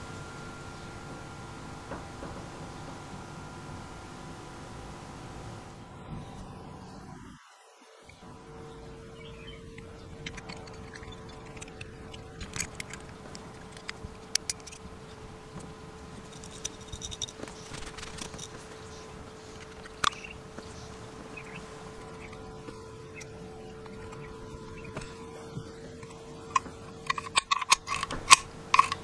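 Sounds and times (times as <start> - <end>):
steady hum: 0.0 - 29.0
small metal clicks and taps: 9.8 - 14.8, 26.0 - 29.0.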